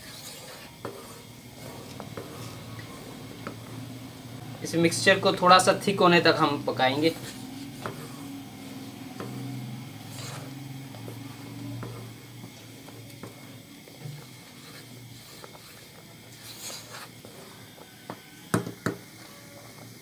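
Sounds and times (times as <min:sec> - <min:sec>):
wooden spoon scraping a pot: 0:00.0 - 0:20.0
spoon knocking against pan: 0:18.0 - 0:19.0.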